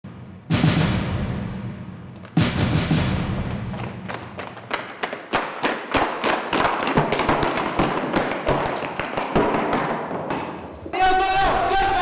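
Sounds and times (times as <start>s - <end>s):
boots running on concrete: 2.1s - 10.9s.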